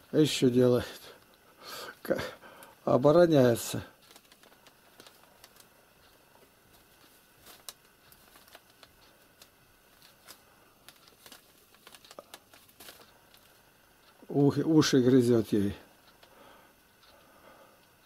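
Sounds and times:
newspaper crinkling and rustling: 3.4s - 13.6s.

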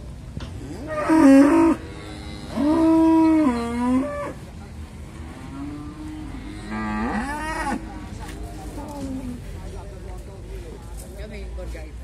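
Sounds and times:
cattle mooing: 0.6s - 4.4s, 5.2s - 8.0s.

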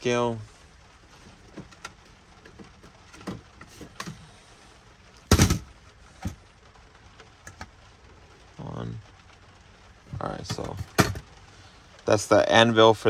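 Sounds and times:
loud thump: 5.3s - 5.7s.

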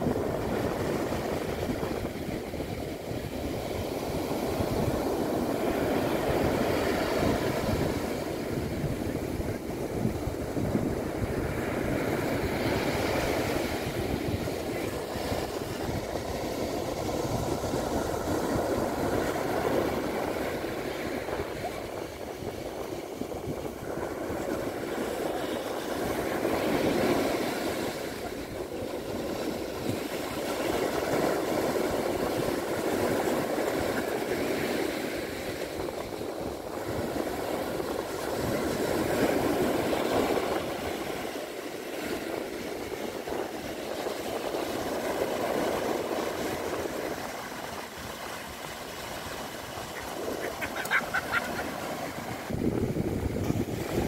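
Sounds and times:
waves breaking on sand beach: 0.0s - 54.0s.

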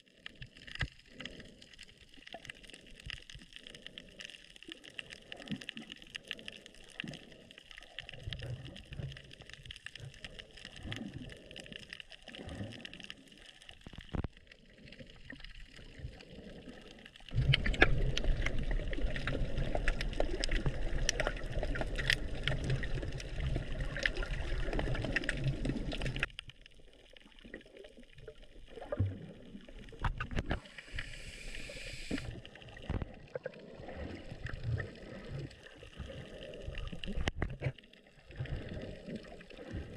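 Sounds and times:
water gurgling and sloshing: 0.0s - 39.9s
faint clicks: 17.4s - 23.3s.

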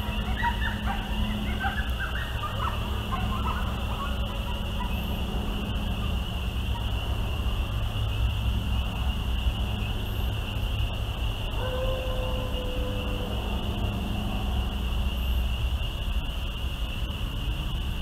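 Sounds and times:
coyote howl: 0.0s - 6.0s, 11.5s - 14.4s
coyotes yipping: 0.0s - 7.5s, 11.5s - 14.8s
high insect drone: 0.0s - 18.0s.

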